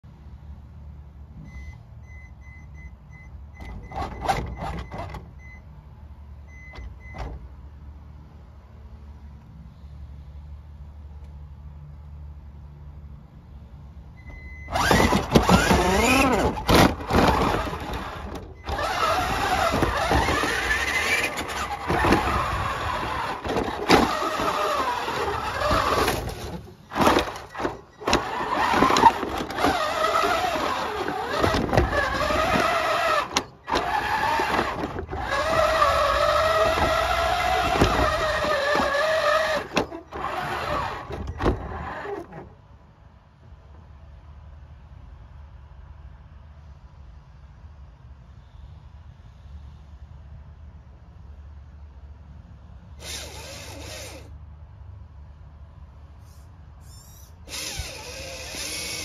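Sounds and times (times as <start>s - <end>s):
toy truck electric motor whining: 14.4s - 42.5s, 53.0s - 54.4s, 56.2s - 59.0s.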